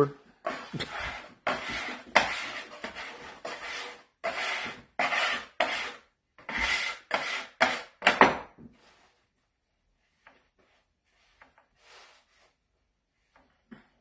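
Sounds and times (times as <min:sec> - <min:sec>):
metal scraper rasping on wood: 0:00.4 - 0:08.2.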